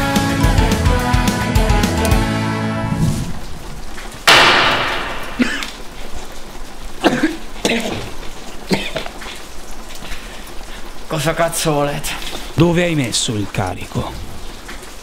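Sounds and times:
rock music: 0.0 - 2.8
loud ringing slam: 4.3 - 5.5.

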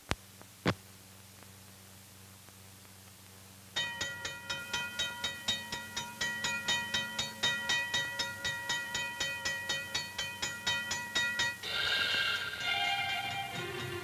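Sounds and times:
crossing signal bell ringing: 3.8 - 14.0.

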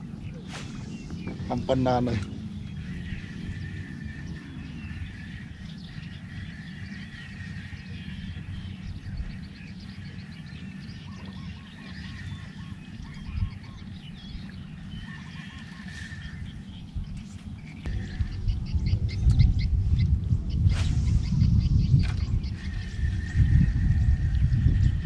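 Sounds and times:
birds calling: 0.0 - 25.0
wind rumbling on microphone: 0.0 - 25.0.

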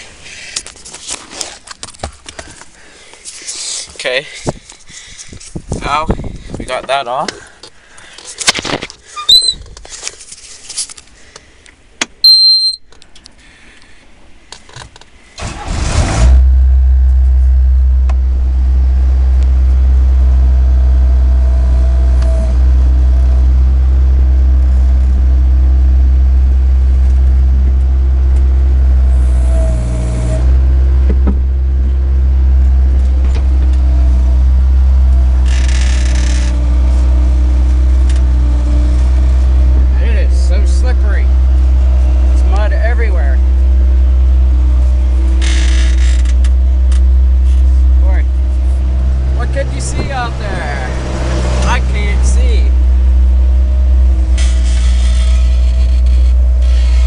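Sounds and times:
short high beep: 12.2 - 12.9
diesel engine starting and idling: 15.3 - 57.0.

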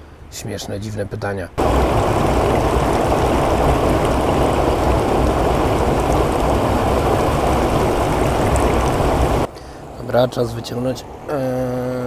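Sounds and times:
stream rushing over stones: 1.6 - 9.5.

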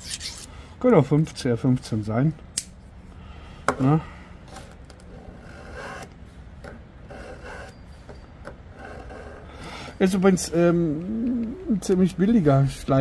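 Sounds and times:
knife blade rasping through sharpener: 0.0 - 0.5, 7.1 - 7.8.

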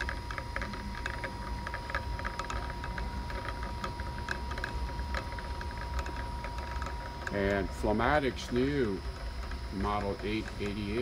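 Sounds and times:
check valve disc clicking: 0.0 - 11.0.

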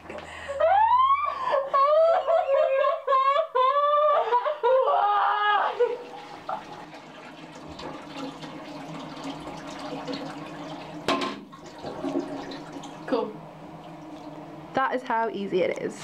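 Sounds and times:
woman wailing and sobbing: 0.4 - 6.1
water trickling into toilet bowl: 5.7 - 14.8.

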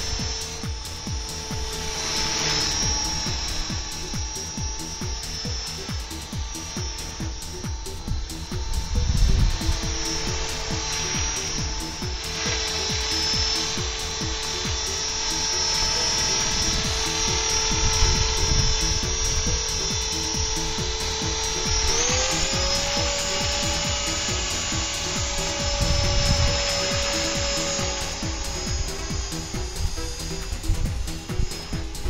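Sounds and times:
background music with steady beat: 0.0 - 32.0
rc helicopter motor whine: 0.0 - 32.0.

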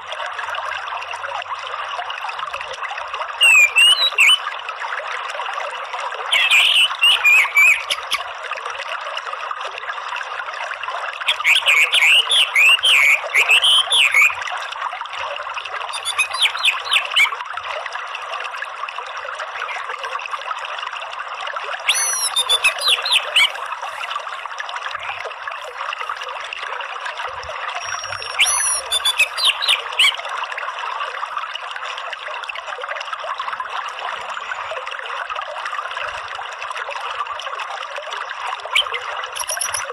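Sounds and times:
running water: 0.0 - 39.9
bird twittering chatter: 6.3 - 8.2, 15.9 - 17.3, 21.9 - 24.0, 27.8 - 30.2, 38.8 - 39.9.

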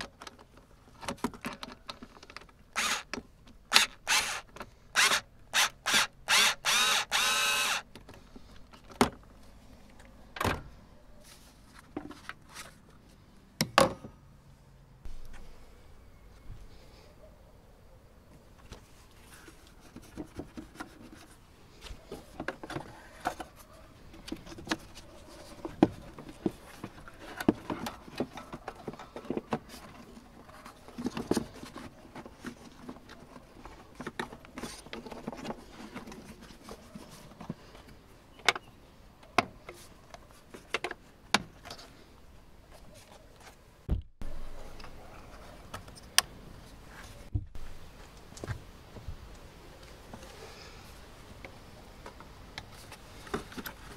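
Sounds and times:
plastic parts rustling and scraping: 0.0 - 5.2, 11.2 - 13.2, 18.5 - 38.6, 39.5 - 48.2, 52.0 - 53.9.

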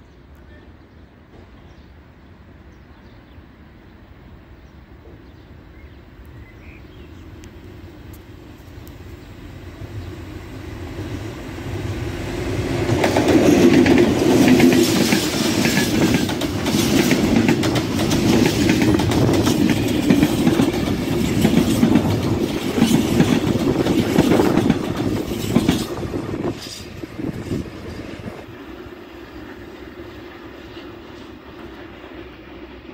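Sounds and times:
diesel locomotive running: 6.2 - 32.9
freight wagons rumbling: 12.5 - 28.5
wheels clattering over rail joints: 12.9 - 27.0.

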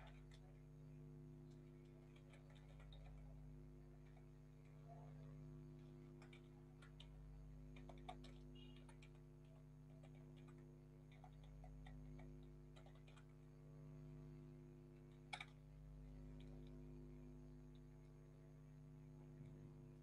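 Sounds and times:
low electrical hum: 0.0 - 20.0
computer keys typing: 1.5 - 4.3, 5.2 - 13.4.

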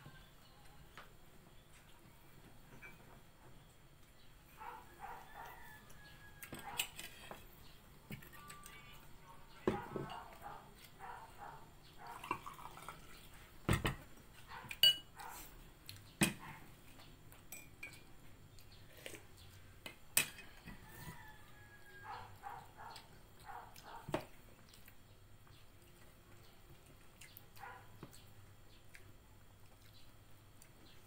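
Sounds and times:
dishes and spoons clinking: 2.7 - 3.2, 6.4 - 7.5, 14.7 - 15.2, 17.4 - 18.2, 20.1 - 20.8.

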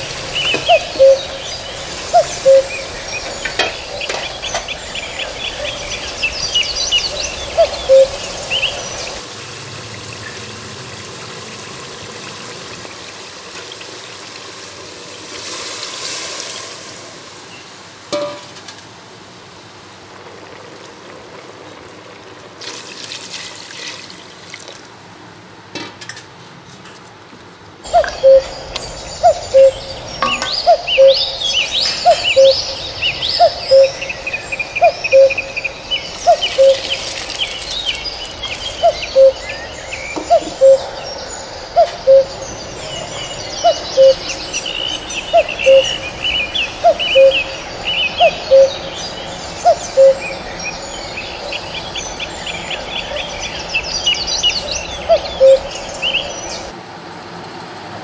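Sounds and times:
birds chirping: 0.0 - 9.2, 27.8 - 56.7.

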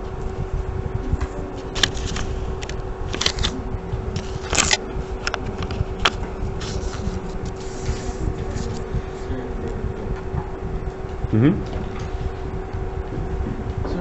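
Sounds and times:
steady low hum: 0.0 - 14.0
paper sticky note rustling: 1.7 - 3.6, 4.2 - 9.2.

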